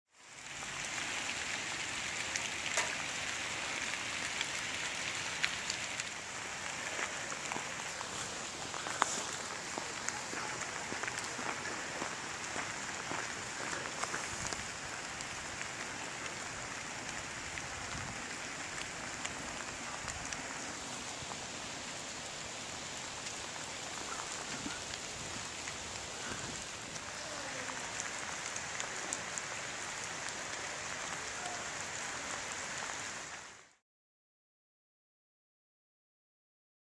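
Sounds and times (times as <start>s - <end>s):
rain on paving and leaves: 0.1s - 33.8s.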